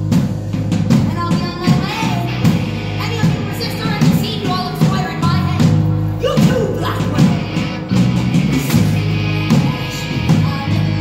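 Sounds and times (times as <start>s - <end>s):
bass guitar: 0.0s - 11.0s
electric guitar: 0.0s - 11.0s
steady drum beat: 0.0s - 11.0s.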